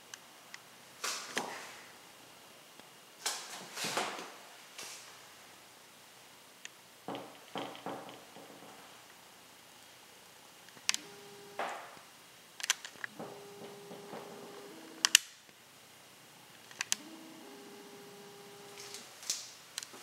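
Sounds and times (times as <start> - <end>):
camera zoom motor whirring: 11.0 - 11.6, 17.0 - 19.0.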